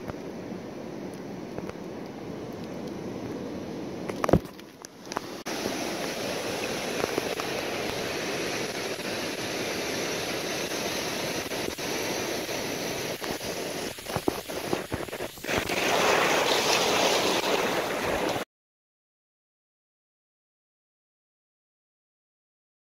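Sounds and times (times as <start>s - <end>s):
wave washing over sand: 0.0s - 18.4s
ocean surf rushing: 5.1s - 18.4s.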